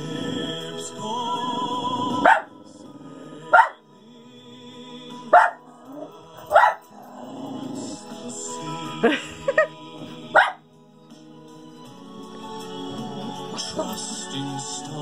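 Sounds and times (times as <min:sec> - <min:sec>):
soft music from television: 0:00.0 - 0:15.0
dog barking: 0:02.2 - 0:02.5, 0:03.5 - 0:03.8, 0:05.3 - 0:06.9, 0:10.3 - 0:10.6.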